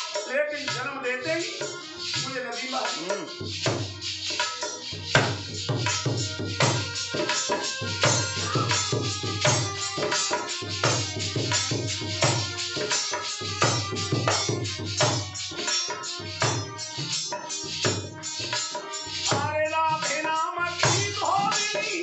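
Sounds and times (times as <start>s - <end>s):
hand drum rhythm: 0.0s - 22.0s
jingling metal percussion: 0.0s - 22.0s
harmonium chords: 5.8s - 19.8s.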